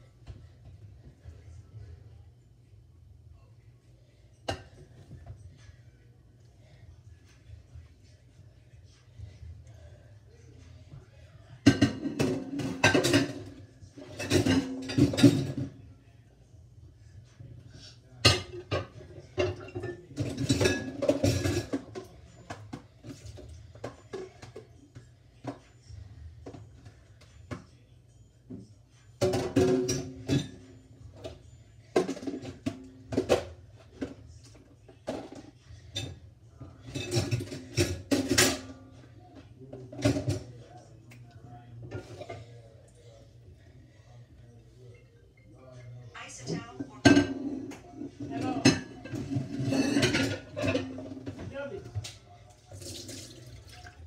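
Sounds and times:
dishes clattering in a steel sink: 4.4 - 5.3, 11.6 - 15.8, 18.2 - 24.7, 29.2 - 40.6, 41.8 - 42.6, 47.0 - 54.0
plastic bowls clattering in sink: 48.3 - 51.4.

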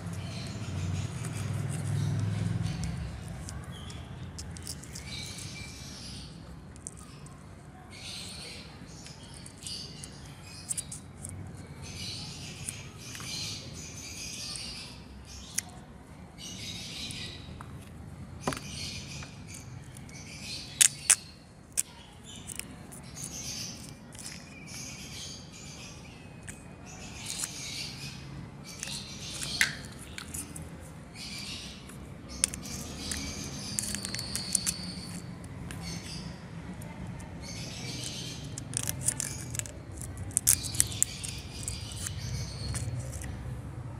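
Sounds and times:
sharp plastic clicks: 20.8 - 24.5, 32.3 - 36.2, 37.7 - 43.3
plastic crinkling: 38.1 - 43.3.

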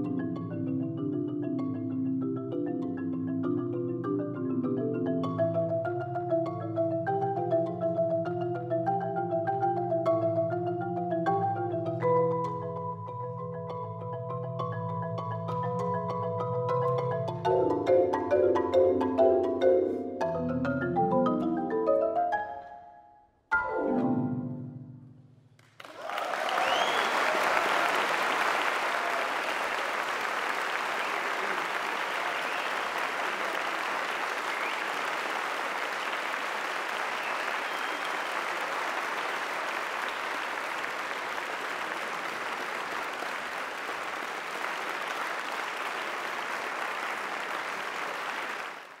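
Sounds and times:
audience applauding: 25.6 - 49.0.

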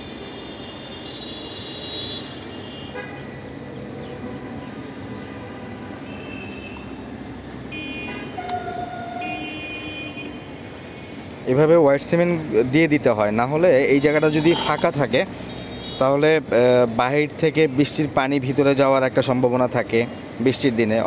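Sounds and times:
horn-like high tones: 7.7 - 11.0, 14.2 - 14.9.

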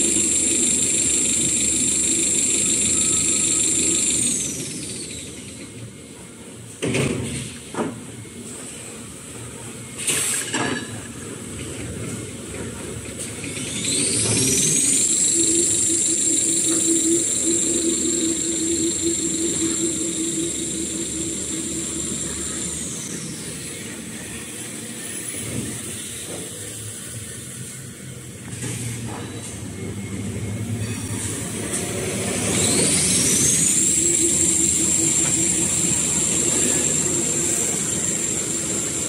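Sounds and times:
machine whine: 0.0 - 6.3, 12.0 - 27.1, 28.5 - 39.0
factory machinery hum: 0.0 - 39.0.

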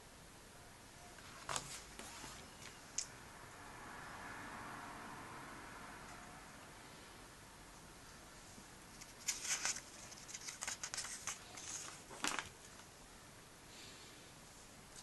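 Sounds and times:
glossy paper crackling: 8.9 - 12.9.

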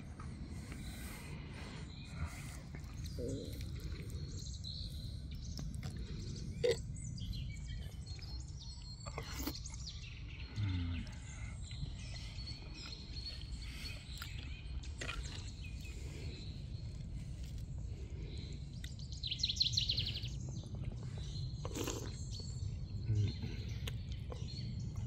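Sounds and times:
birds chirping: 0.0 - 25.0
low outdoor rumble: 0.0 - 25.0.

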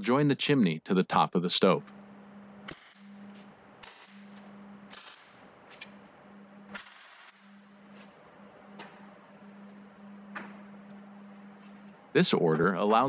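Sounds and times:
welding arc crackle: 2.6 - 5.9, 6.7 - 7.8.

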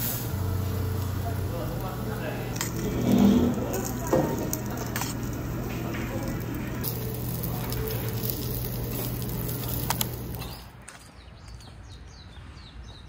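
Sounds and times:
meat sizzling on a grill: 0.0 - 10.6
steady low hum: 0.0 - 10.8.

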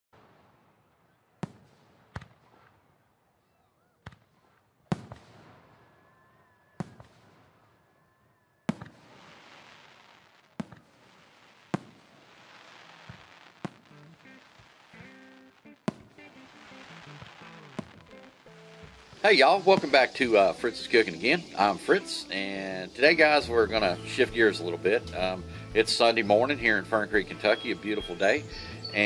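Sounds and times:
fireworks bangs: 0.1 - 29.0
fireworks crackling hiss: 6.8 - 29.0
faint whistling tone: 27.3 - 29.0.

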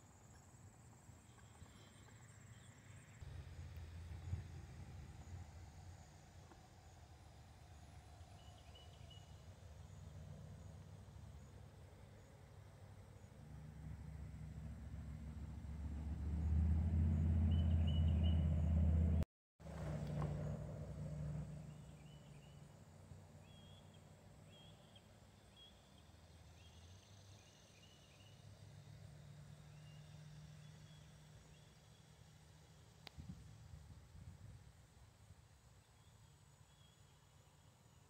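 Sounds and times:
passing vehicle engine rumble: 1.3 - 24.5, 26.0 - 34.5
faint bird chirps: 23.4 - 28.5.

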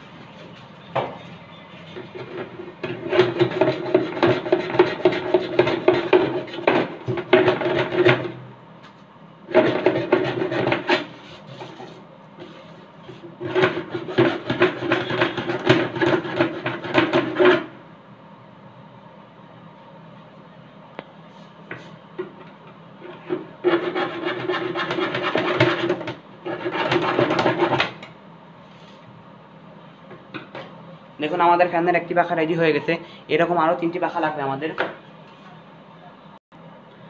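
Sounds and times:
hacksaw cutting plastic pipe: 2.8 - 8.3, 9.5 - 11.8, 13.4 - 17.7, 23.0 - 28.1.

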